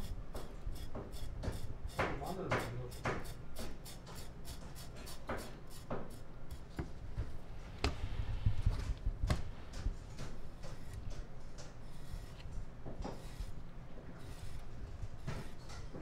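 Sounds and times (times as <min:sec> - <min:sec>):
knife scraping on cutting board: 0:00.0 - 0:06.6, 0:10.6 - 0:16.0.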